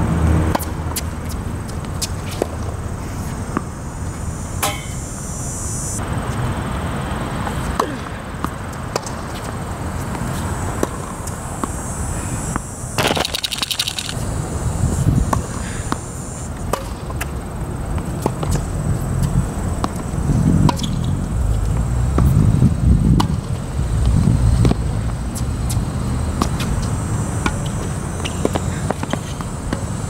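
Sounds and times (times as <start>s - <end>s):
rapid clicking: 13.0s - 14.2s.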